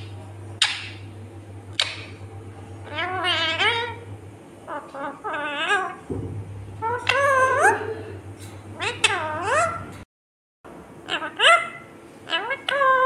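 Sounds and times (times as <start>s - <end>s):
sharp clicks: 1.7s - 2.1s
parakeet warbling chatter: 2.8s - 4.0s, 6.8s - 7.9s, 8.8s - 9.9s, 11.0s - 13.0s.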